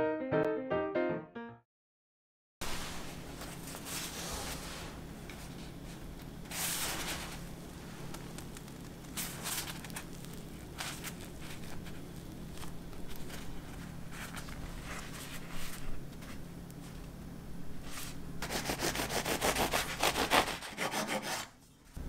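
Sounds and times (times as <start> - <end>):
bread crust rustling: 3.1 - 17.0
bread tearing softly: 6.9 - 17.1.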